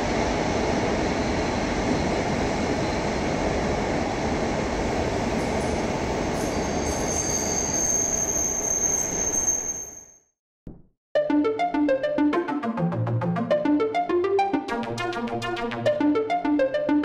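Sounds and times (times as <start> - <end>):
high-pitched train squeal: 5.4 - 10.3.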